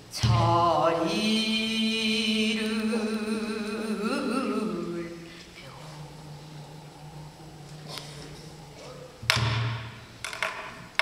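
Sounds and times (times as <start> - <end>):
woman singing long vibrato note: 0.2 - 8.7.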